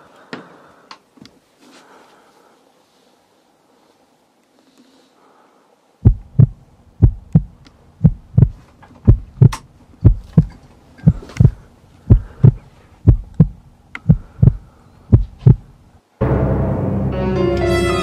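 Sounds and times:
faint steady hum: 0.0s - 16.2s
heartbeat thumps: 6.0s - 15.8s.

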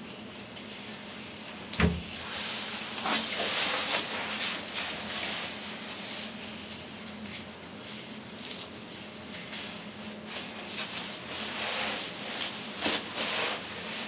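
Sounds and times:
dull thump: 1.8s - 2.2s.

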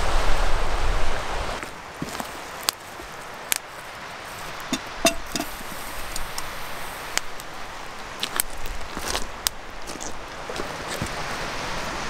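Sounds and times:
campfire crackling: 1.6s - 11.6s
metal kettle clink: 4.7s - 5.8s.

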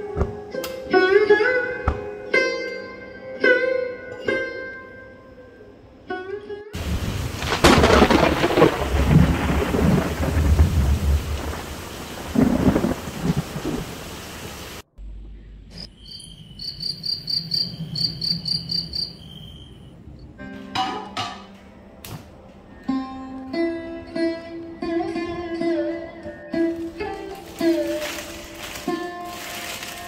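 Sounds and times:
heavy rain pouring: 6.8s - 14.9s, 26.8s - 30.0s
thunder rumbling: 6.8s - 15.7s
insects chirping: 6.8s - 20.4s, 26.8s - 30.0s.

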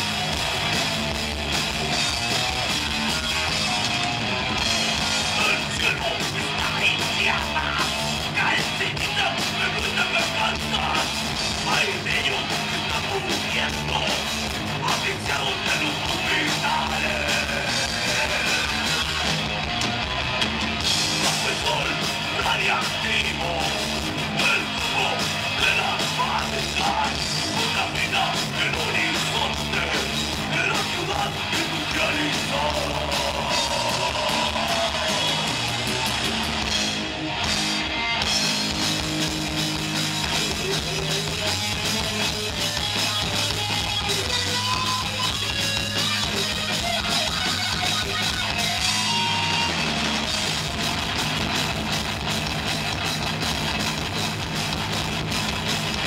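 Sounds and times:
bass guitar: 0.0s - 56.0s
drum kit: 0.0s - 56.0s
electric guitar: 0.0s - 56.0s
person singing: 5.3s - 19.2s, 21.2s - 35.6s.

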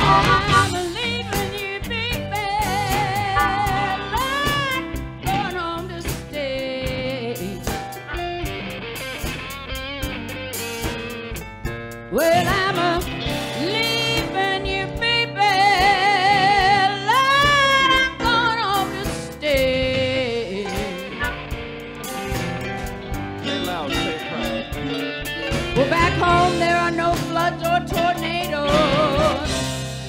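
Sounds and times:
blues band playing: 0.0s - 30.0s
electric guitar lead with vibrato: 0.0s - 30.0s.

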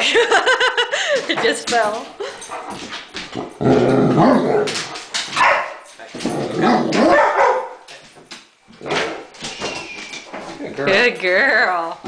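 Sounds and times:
dog barking: 5.4s - 5.8s, 6.7s - 7.8s.

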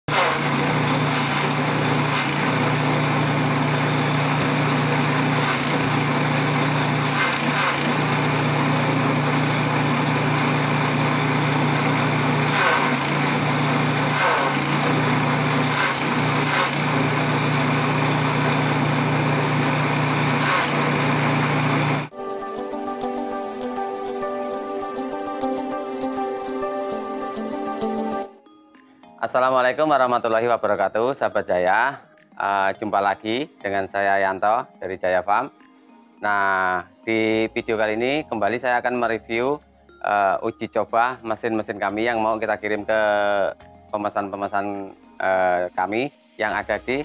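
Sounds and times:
blades crunching straw: 0.1s - 22.1s
small engine running: 0.1s - 22.1s.

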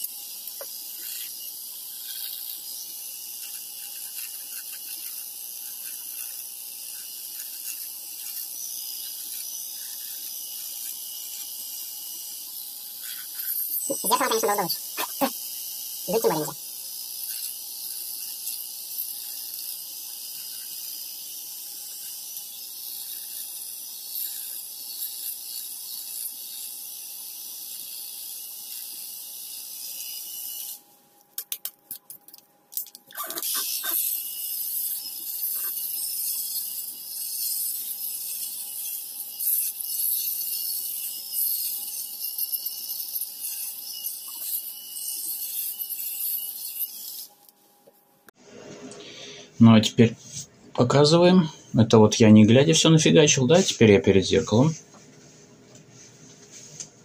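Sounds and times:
electric shaver buzzing: 0.0s - 31.6s, 33.1s - 47.5s.

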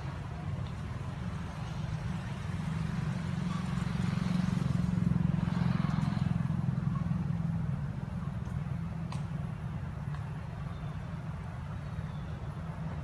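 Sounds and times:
passing vehicle engine rumble: 0.0s - 13.0s.

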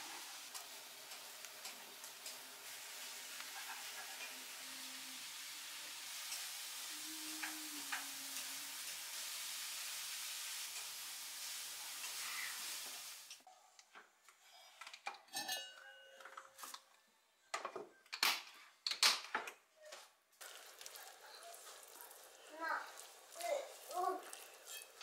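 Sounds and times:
steady hiss: 0.0s - 13.4s
pot and utensils clanking: 14.6s - 16.8s, 24.2s - 25.0s.

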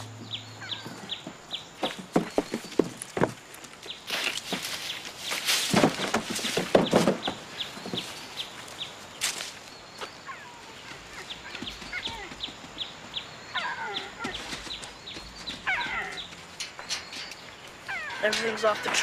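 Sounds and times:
animal squealing calls: 13.5s - 14.5s, 15.6s - 16.3s, 17.8s - 19.0s
animal chirping: 15.4s - 19.0s.

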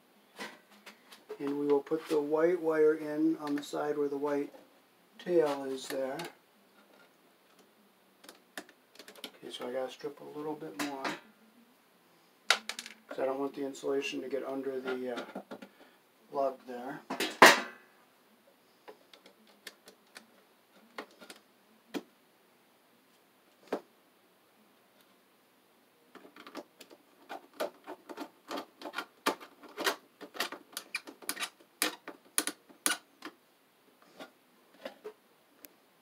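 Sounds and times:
hand tools clicking and scraping: 26.2s - 33.3s.

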